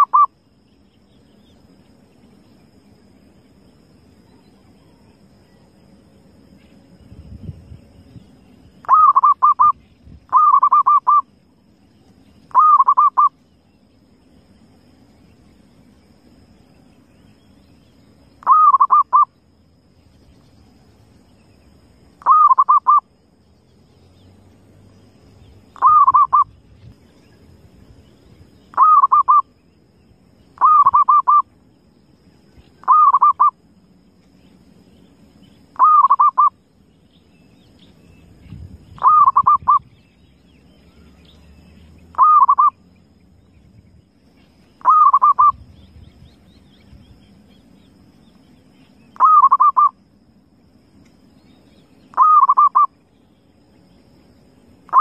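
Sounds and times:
dove cooing: 0:08.8 - 0:09.7, 0:10.3 - 0:11.2, 0:12.5 - 0:13.3, 0:18.4 - 0:19.3, 0:22.2 - 0:23.0, 0:25.8 - 0:26.5, 0:28.8 - 0:29.4, 0:30.6 - 0:31.4, 0:32.8 - 0:33.5, 0:35.8 - 0:36.5, 0:39.0 - 0:39.8, 0:42.1 - 0:42.8, 0:44.8 - 0:45.6, 0:49.2 - 0:49.9, 0:52.2 - 0:52.9.

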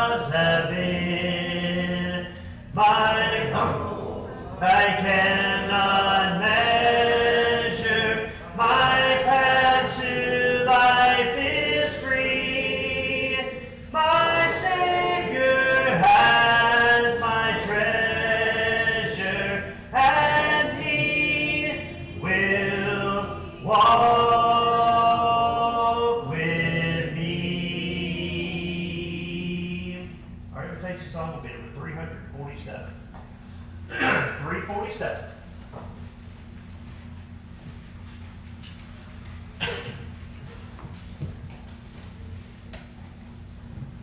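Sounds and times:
congregation singing a hymn: 0:00.0 - 0:30.3.

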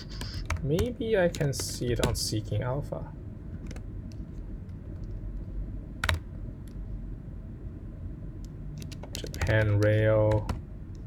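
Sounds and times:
steady low hum: 0:00.0 - 0:11.0
keyboard keystrokes: 0:06.0 - 0:06.2, 0:08.8 - 0:10.6.

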